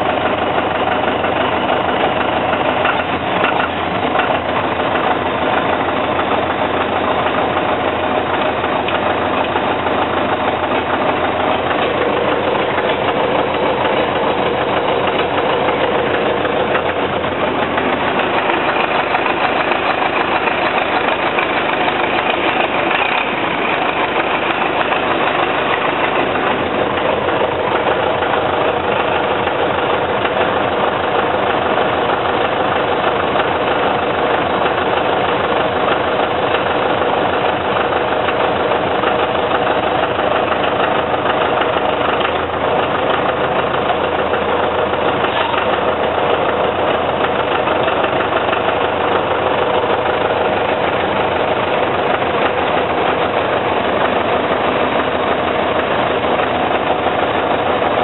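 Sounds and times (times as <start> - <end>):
vehicle engine running: 0.0 - 58.0.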